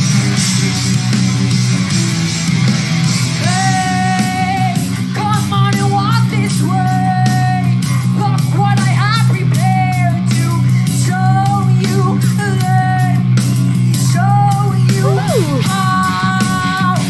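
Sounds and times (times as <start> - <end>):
woman singing: 15.0 - 16.9.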